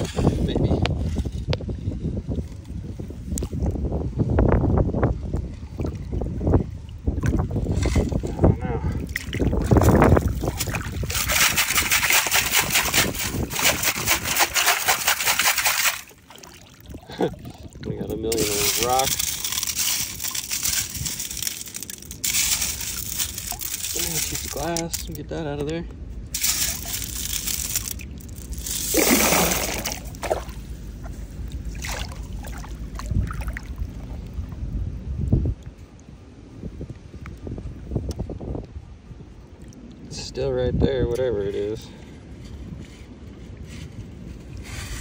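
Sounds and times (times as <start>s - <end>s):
water pouring out: 9.0s - 25.2s, 26.3s - 30.7s, 31.6s - 34.3s
stones rattling in metal scoop: 9.7s - 16.1s, 18.1s - 25.3s, 26.3s - 30.5s.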